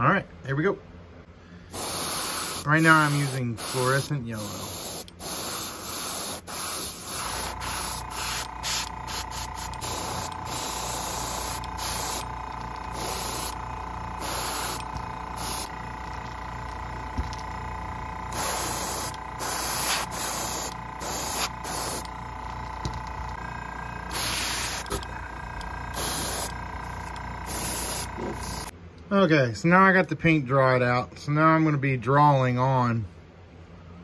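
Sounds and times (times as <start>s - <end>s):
steady hum: 0.0s - 29.9s
airbrush spraying hiss: 1.7s - 12.3s, 12.9s - 13.6s, 14.2s - 15.7s, 18.3s - 22.1s, 24.1s - 25.0s, 25.9s - 28.7s.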